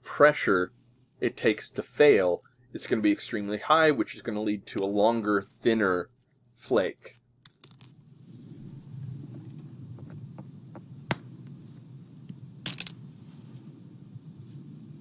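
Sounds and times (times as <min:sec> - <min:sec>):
low steady hum: 0:00.2 - 0:15.0.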